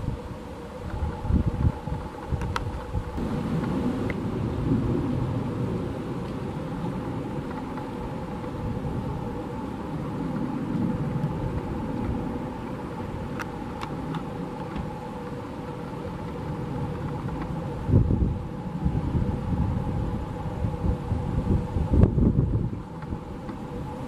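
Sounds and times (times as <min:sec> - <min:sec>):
jet engines rumbling with hum: 0:00.0 - 0:24.0.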